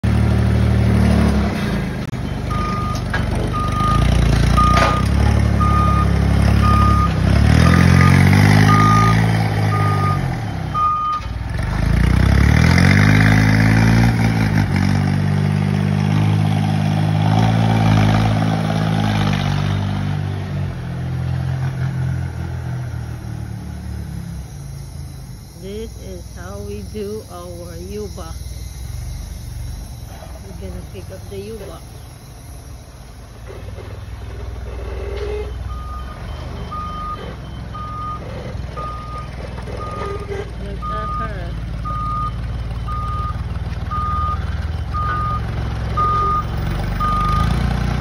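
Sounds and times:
forklift engine revving: 0:00.0 - 0:48.0
reversing alarm beeping: 0:02.2 - 0:11.4, 0:22.4 - 0:47.8.

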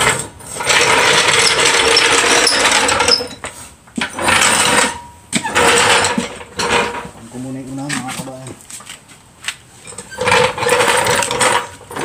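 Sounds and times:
car jack rattling and scraping: 0:00.0 - 0:07.2, 0:09.8 - 0:12.0.

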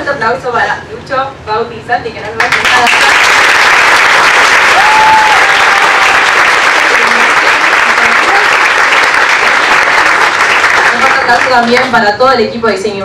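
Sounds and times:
audience applauding: 0:02.4 - 0:11.9.

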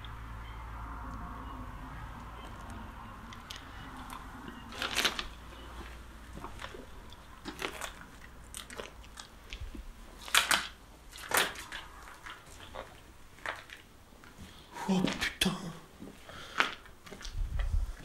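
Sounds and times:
footsteps crunching on rubble: 0:04.7 - 0:10.3, 0:11.1 - 0:15.3.

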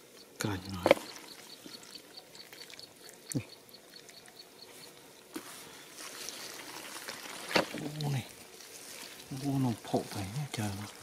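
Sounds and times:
hands squelching in wet mud: 0:05.3 - 0:11.0.

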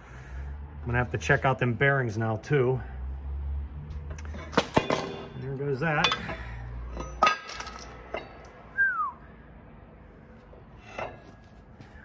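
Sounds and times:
metal clanking and clinking: 0:04.1 - 0:08.6, 0:10.5 - 0:11.4.

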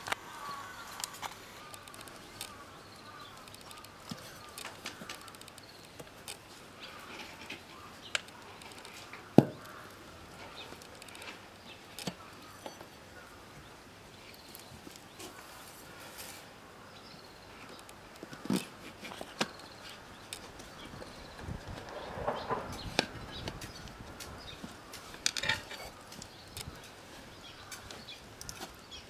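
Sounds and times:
tire irons clicking on metal rim: 0:01.0 - 0:06.4.

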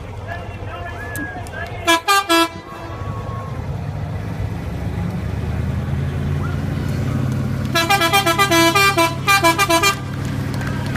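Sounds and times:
truck engine running: 0:00.0 - 0:10.9
musical horn tune: 0:07.8 - 0:10.0.

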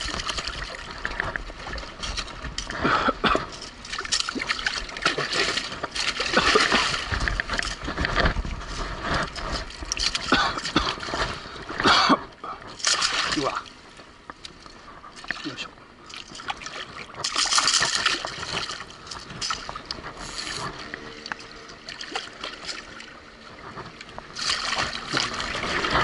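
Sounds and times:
fish splashing in water: 0:03.8 - 0:11.5, 0:12.8 - 0:13.8, 0:15.2 - 0:23.2, 0:23.9 - 0:26.0.

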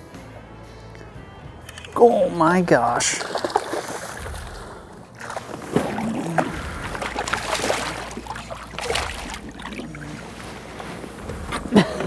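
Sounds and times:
fish splashing at surface: 0:03.1 - 0:10.4
water sloshing against hull: 0:03.2 - 0:12.0.

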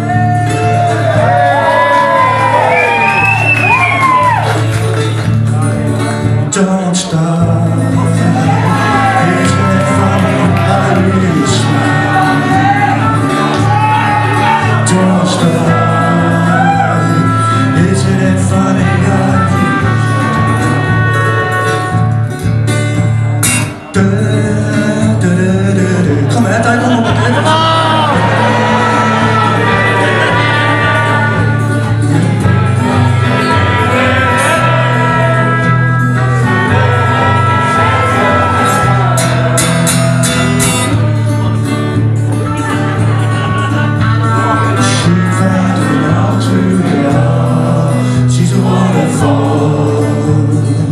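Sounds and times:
acoustic guitar: 0:00.0 - 0:50.9
person singing: 0:05.6 - 0:21.6, 0:23.7 - 0:50.9
low bass line: 0:07.2 - 0:50.9
trumpet: 0:08.4 - 0:22.4, 0:27.9 - 0:47.3.

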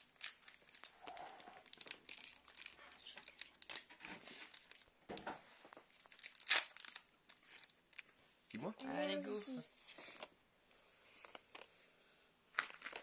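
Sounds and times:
foil wrapper crinkling: 0:00.0 - 0:05.2, 0:05.9 - 0:08.1, 0:12.5 - 0:13.0.

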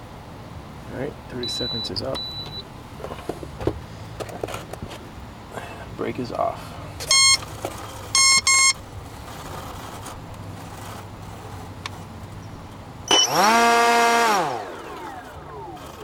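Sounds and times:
short electronic beeps: 0:01.4 - 0:02.6, 0:07.1 - 0:07.4, 0:08.2 - 0:08.8, 0:13.1 - 0:13.6
electric motor whine: 0:13.1 - 0:16.0.

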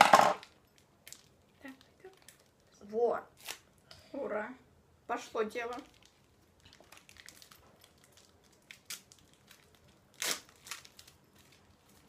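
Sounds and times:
cellophane wrapper crinkling: 0:00.4 - 0:02.8, 0:05.7 - 0:12.0.

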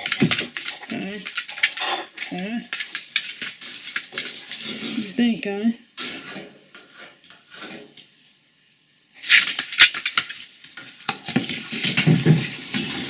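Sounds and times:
dog claws clattering on hard floor: 0:00.0 - 0:04.6.

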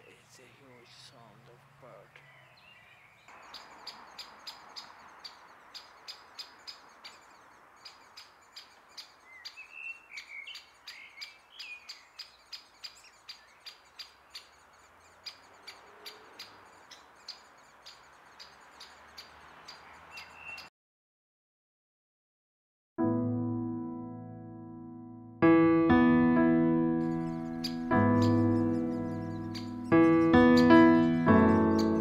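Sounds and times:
distant traffic rush: 0:00.0 - 0:20.7, 0:27.0 - 0:32.0
bird warbling: 0:02.2 - 0:20.7, 0:27.0 - 0:32.0
bird repeating high call: 0:03.3 - 0:14.5, 0:15.2 - 0:20.7.

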